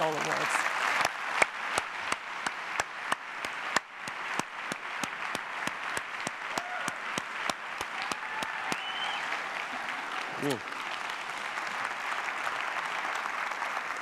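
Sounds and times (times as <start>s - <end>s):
audience applauding: 0.0s - 14.0s
nearby hands clapping sharply: 0.9s - 10.7s.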